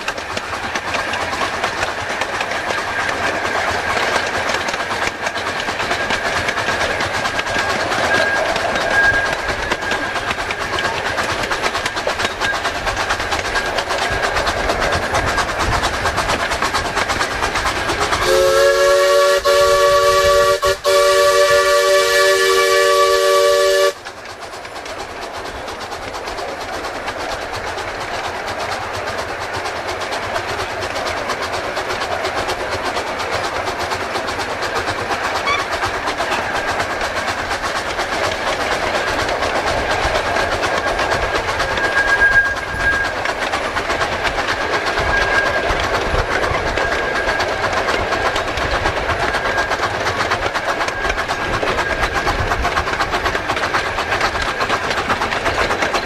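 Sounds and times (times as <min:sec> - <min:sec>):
train rumble and rattle on track: 0:00.0 - 0:56.0
steam chime whistle: 0:08.0 - 0:09.5, 0:18.2 - 0:24.0, 0:41.7 - 0:43.2
faint thin squeal: 0:41.7 - 0:43.2.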